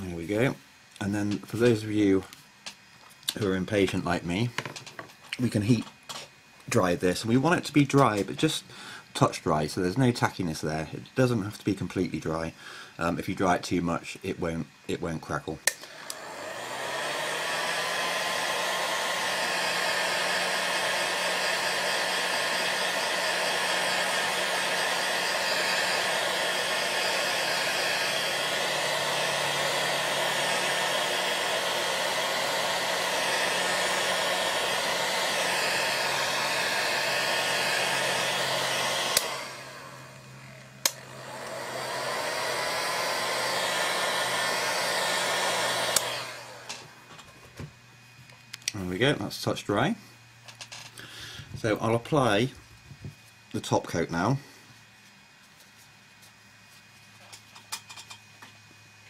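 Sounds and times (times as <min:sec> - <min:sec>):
heat gun blowing: 0:15.6 - 0:47.1
heat gun switch click: 0:39.1 - 0:39.4, 0:40.8 - 0:41.0, 0:45.9 - 0:46.1.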